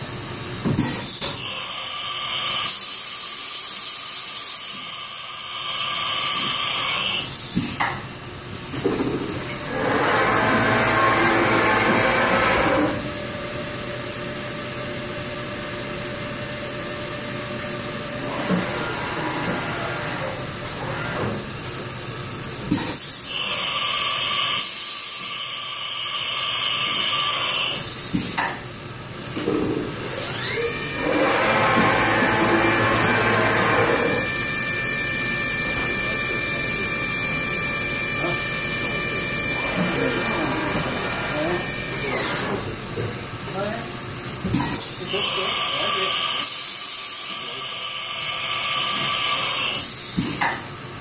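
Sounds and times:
machine whine: 8.7s - 28.0s, 28.8s - 50.2s.

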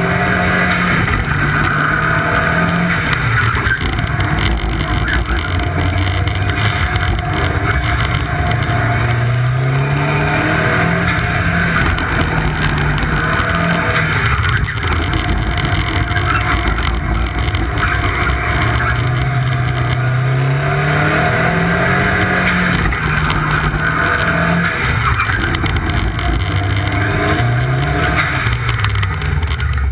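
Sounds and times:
car engine revving: 0.0s - 29.9s
steady rushing noise: 0.0s - 29.9s.

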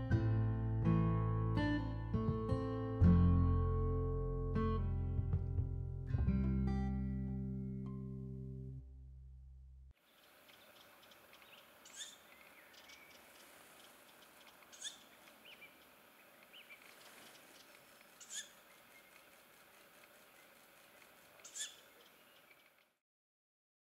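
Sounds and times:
small bird chirps: 10.0s - 23.0s
owl chicks calling: 10.1s - 22.9s.

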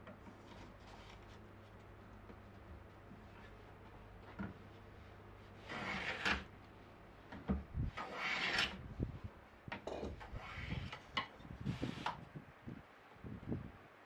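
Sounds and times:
hand plane shaving wood: 5.5s - 6.5s, 8.0s - 8.8s, 10.2s - 11.1s.

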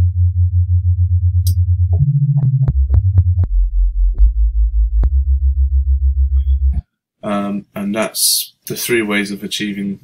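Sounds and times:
wobbling synth sub bass: 0.0s - 6.8s.

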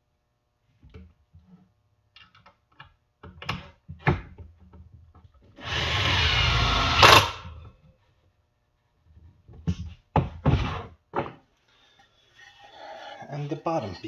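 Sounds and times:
cordless drill driving screw: 5.6s - 7.4s
sharp crack of screw seating: 7.0s - 7.5s.

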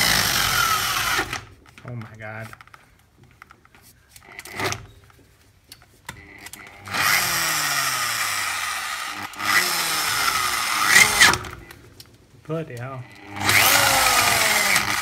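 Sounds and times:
power drill boring metal: 0.0s - 1.5s, 6.2s - 11.7s, 13.1s - 15.0s.

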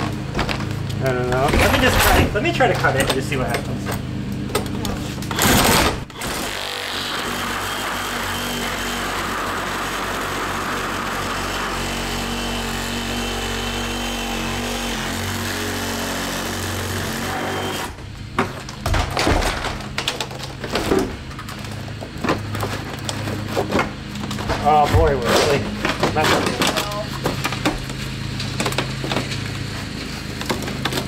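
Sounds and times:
reciprocating saw cutting: 5.2s - 18.0s.

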